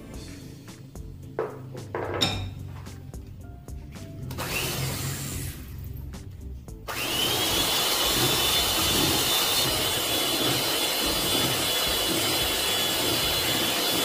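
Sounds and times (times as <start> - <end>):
hand mixer motor whine: 4.3 - 5.7, 6.9 - 14.0
beaters scraping in batter: 7.3 - 14.0.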